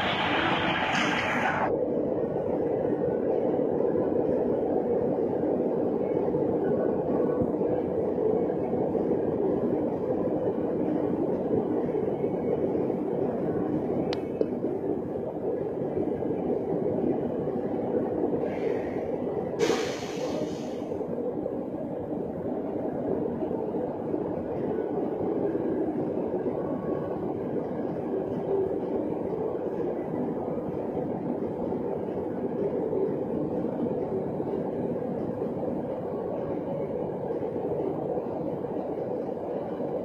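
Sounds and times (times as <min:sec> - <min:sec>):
machine drone: 0:00.0 - 0:01.7
brief hiss: 0:19.6 - 0:20.6.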